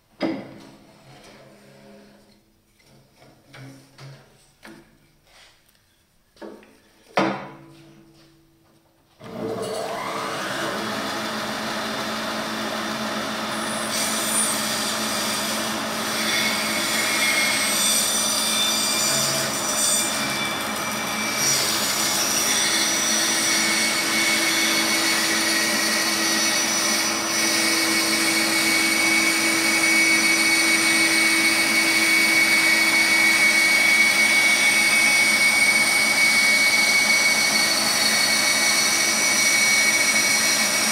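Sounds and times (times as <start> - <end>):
bandsaw cutting wood: 9.2 - 40.9.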